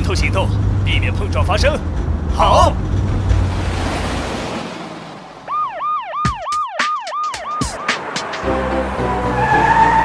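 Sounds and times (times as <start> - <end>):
cartoon siren wail: 5.5 - 8.0, 9.2 - 10.0
music: 6.1 - 10.0.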